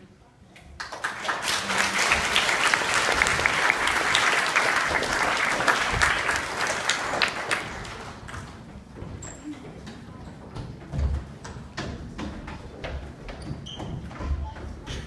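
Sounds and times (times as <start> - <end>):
children clapping: 0.8 - 8.5.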